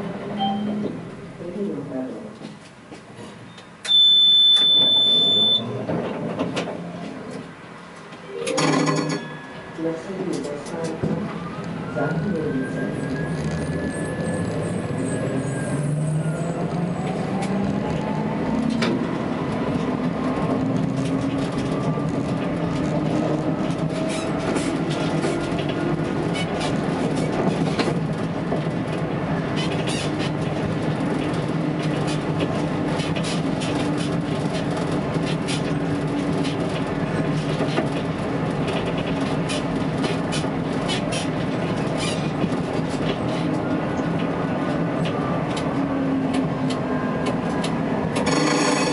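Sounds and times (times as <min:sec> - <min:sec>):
tram drive whine: 0:02.5 - 0:48.9
wheels clicking on rails: 0:18.6 - 0:48.9.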